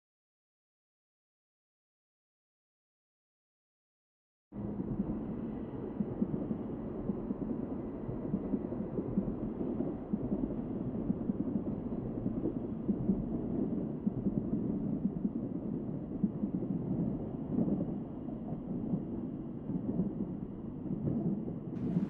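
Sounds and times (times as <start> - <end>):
low rumbling drone: 21.6 - 22.0.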